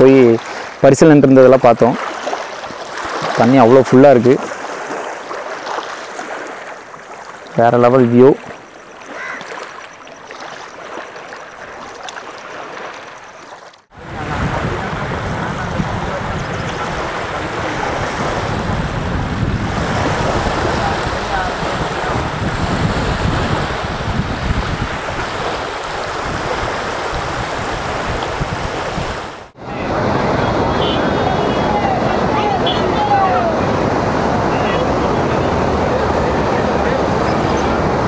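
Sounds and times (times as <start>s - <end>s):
small waves lapping on shore: 0.0s - 38.0s
wind buffeting microphone: 13.9s - 38.0s.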